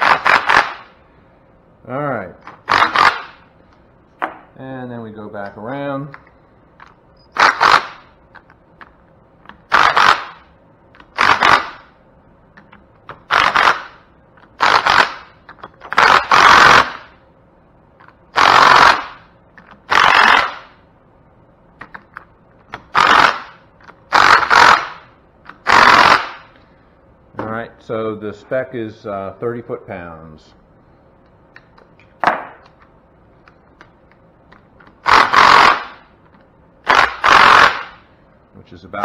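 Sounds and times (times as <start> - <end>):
impact wrench bursts: 0.0 - 0.9, 2.5 - 3.4, 7.3 - 8.1, 9.7 - 10.5, 11.1 - 11.9, 13.2 - 14.0, 14.6 - 17.2, 18.3 - 19.2, 19.9 - 20.8, 22.8 - 26.6, 35.0 - 36.1, 36.8 - 38.1.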